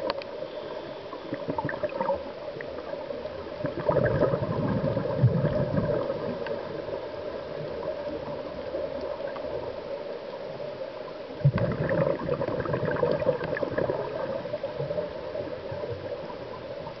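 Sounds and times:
underwater breath bubbles: 1.2s - 2.3s, 3.5s - 6.7s, 11.4s - 15.0s.

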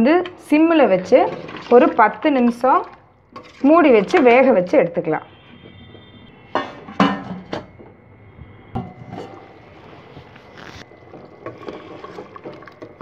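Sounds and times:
steel pot clanking: 0.0s - 4.7s, 6.5s - 7.8s, 8.8s - 9.9s.

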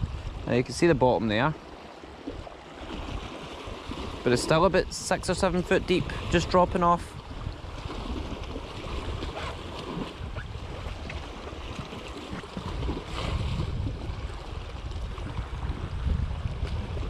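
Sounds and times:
wind buffeting microphone: 0.0s - 0.6s, 2.2s - 17.0s
waves splashing on rocks: 2.5s - 15.8s.

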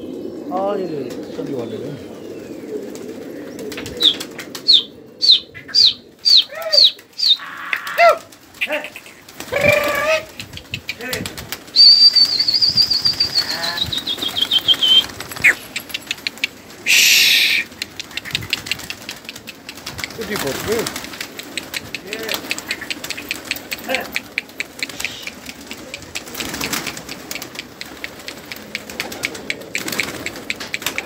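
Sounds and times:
pigeon wings flapping: 2.6s - 5.0s, 5.6s - 31.0s
long wavering whistle: 11.8s - 15.0s, 16.9s - 17.6s
short falling whistles: 11.8s - 15.1s, 16.9s - 17.6s.

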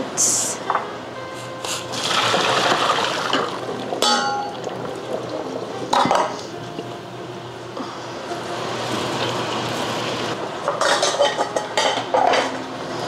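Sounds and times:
water pouring into sink: 2.0s - 4.0s
metal pot clanking: 2.4s - 4.8s, 5.9s - 6.4s, 10.6s - 12.6s.

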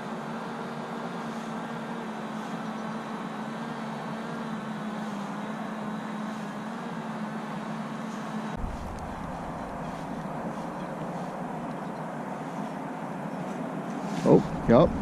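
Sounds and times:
low background hum: 7.6s - 15.0s
deep rumble: 8.6s - 12.0s, 14.4s - 15.0s.

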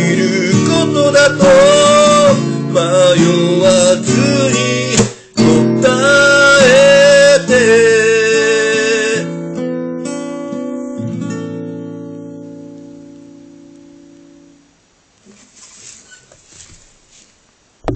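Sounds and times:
man singing: 0.0s - 9.4s
acoustic guitar strumming: 0.0s - 14.7s.

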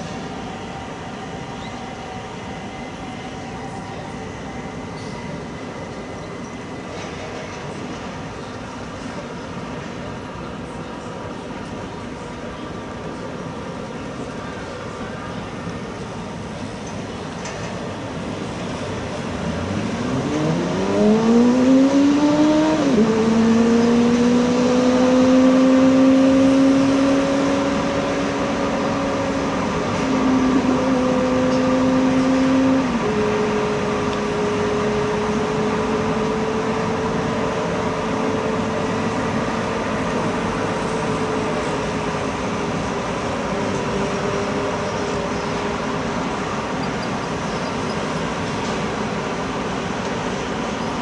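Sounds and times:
engine revving: 19.4s - 36.7s.

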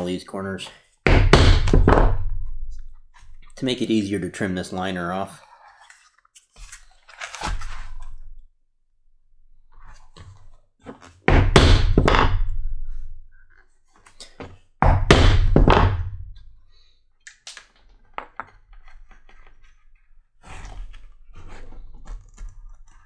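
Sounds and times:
mallet striking hole punch: 11.3s - 12.5s.

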